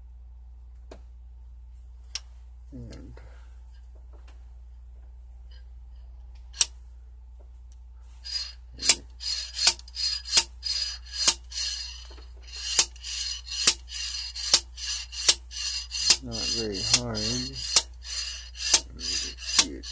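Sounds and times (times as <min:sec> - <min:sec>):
metal scraping: 0:08.2 - 0:19.9
metal clacks: 0:08.3 - 0:19.9.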